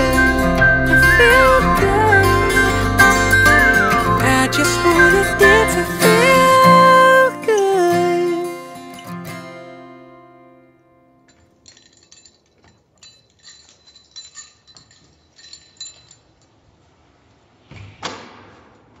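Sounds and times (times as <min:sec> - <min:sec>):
acoustic guitar chord: 0:00.0 - 0:11.0
keys clinking and jingling: 0:07.4 - 0:09.5, 0:11.3 - 0:16.6.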